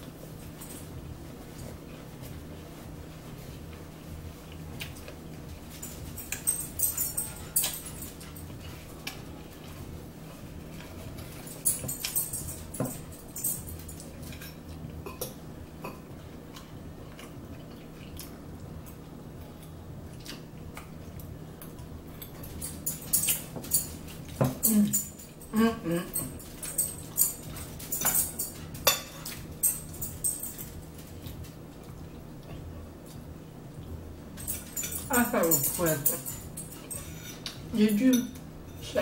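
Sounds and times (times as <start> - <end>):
chewing and crunching: 0.0 - 37.7
faint low hum: 0.0 - 39.0
forks clicking against plates: 4.8 - 9.8, 10.7 - 16.0, 21.6 - 31.6, 34.4 - 39.0.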